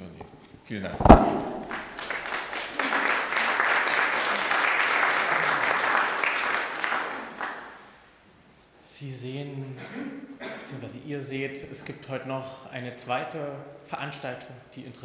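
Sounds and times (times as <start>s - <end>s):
sharp thump: 0.9s - 2.0s
audience applauding: 1.4s - 7.9s.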